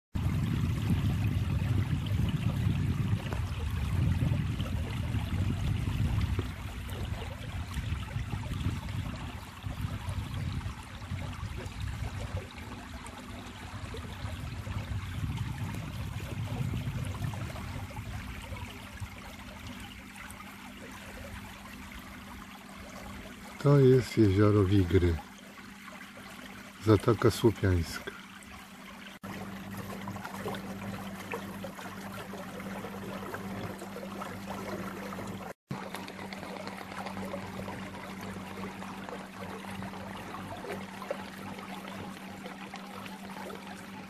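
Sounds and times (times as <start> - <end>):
low rumble: 0.2 - 12.4, 13.6 - 18.7
water lapping against boat hull: 0.2 - 44.0.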